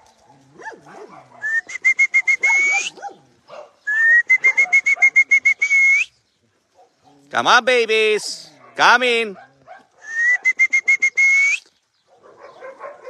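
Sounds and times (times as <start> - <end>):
person whistling: 1.4 - 2.9, 3.9 - 6.1, 10.0 - 11.7.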